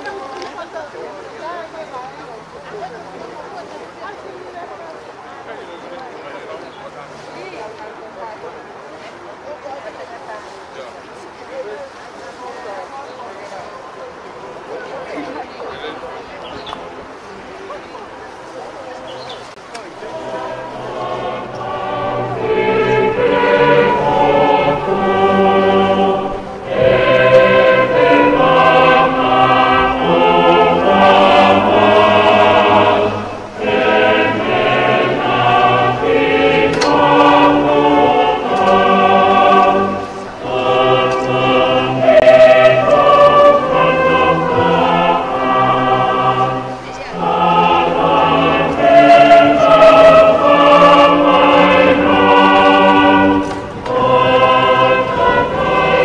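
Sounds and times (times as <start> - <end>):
choir singing a hymn: 18.1 - 56.0.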